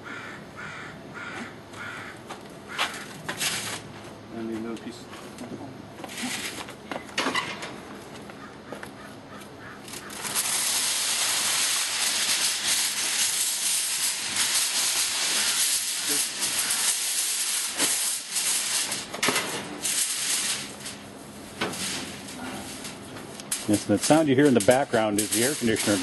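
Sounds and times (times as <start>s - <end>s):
aluminum foil crinkling: 9.9s - 21.0s, 21.6s - 26.0s
foil tearing crackles: 9.9s - 26.0s.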